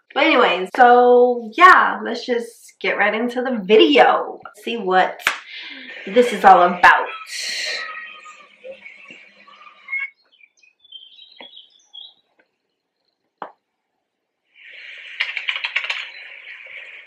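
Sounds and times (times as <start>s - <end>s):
birds chirping: 4.7s - 17.0s
crackle: 14.6s - 17.0s
sharp clicks: 15.0s - 16.5s.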